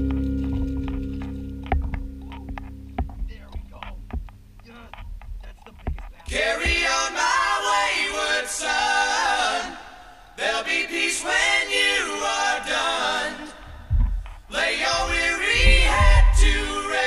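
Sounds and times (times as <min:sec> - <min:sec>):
song with sung vocals: 0:05.8 - 0:17.0.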